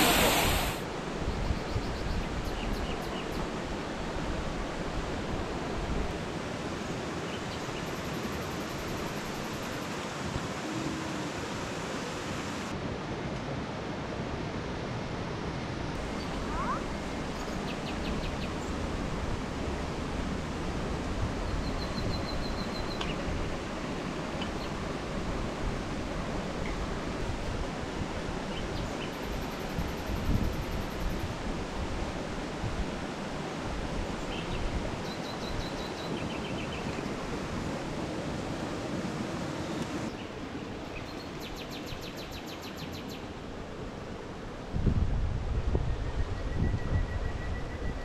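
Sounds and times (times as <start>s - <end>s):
steady rushing noise: 0.0s - 1.2s.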